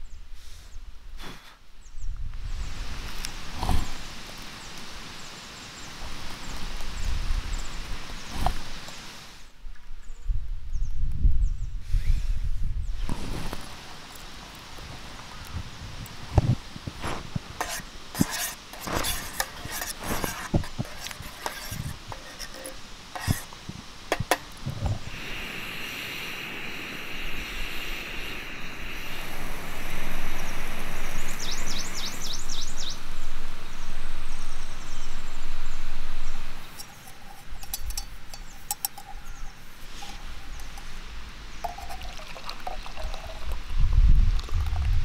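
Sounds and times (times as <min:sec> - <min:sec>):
camping stove burning hiss: 0:00.0 - 0:09.6, 0:11.8 - 0:44.7
metal cookware clicks and clinks: 0:36.8 - 0:40.9.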